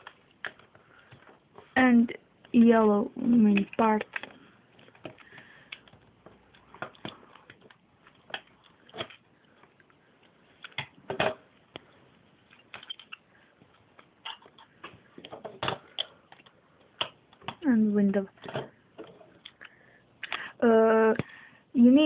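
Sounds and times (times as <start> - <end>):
plastic pieces clicking together: 2.4 - 9.9, 12.5 - 13.2.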